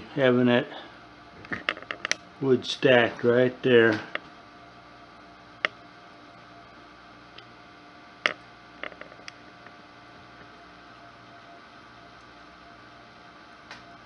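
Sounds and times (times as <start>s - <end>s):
faint steady hum: 0.0s - 14.0s
wood fire popping: 1.4s - 2.3s.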